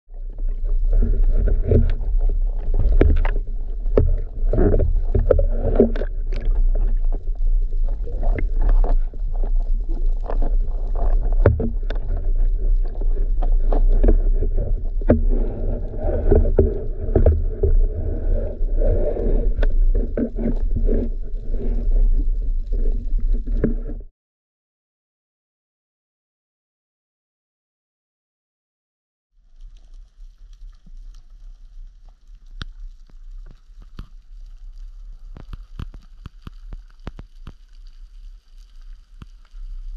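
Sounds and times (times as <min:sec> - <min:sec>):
low rumble of moving water: 0:00.1 - 0:24.1, 0:29.4 - 0:39.9.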